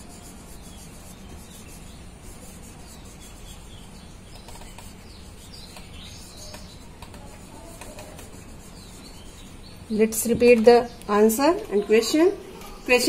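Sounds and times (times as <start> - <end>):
marker squeaks: 0.0 - 9.8
marker writing on whiteboard: 0.0 - 10.8.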